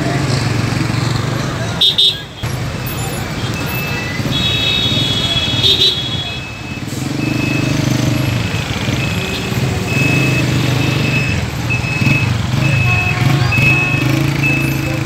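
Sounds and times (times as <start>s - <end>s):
vehicle engines running: 0.0s - 15.0s
high electronic beep: 6.4s - 15.0s.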